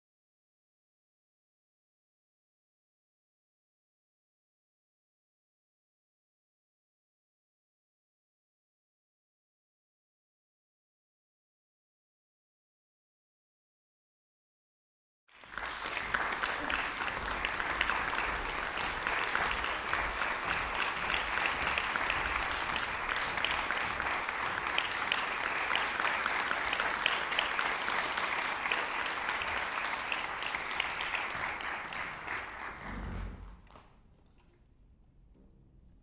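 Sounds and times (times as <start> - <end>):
audience applauding: 15.3 - 34.0.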